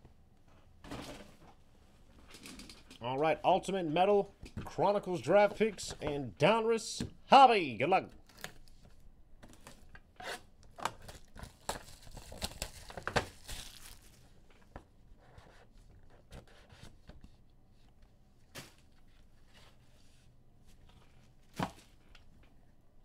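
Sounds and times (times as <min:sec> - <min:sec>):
plastic wrapping ripping and crinkling: 0:11.0 - 0:14.2.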